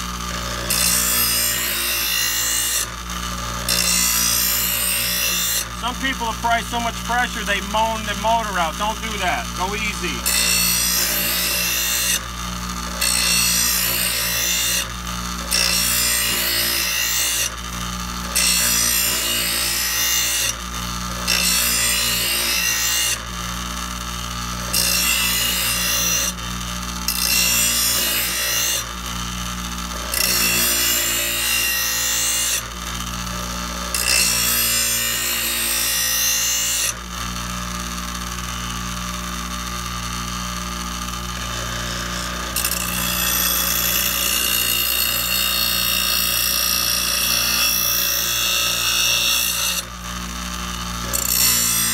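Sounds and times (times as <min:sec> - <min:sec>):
bench grinder motor humming: 0:00.0 - 0:51.9
metal blade grinding on wheel: 0:03.6 - 0:06.4, 0:41.5 - 0:49.9.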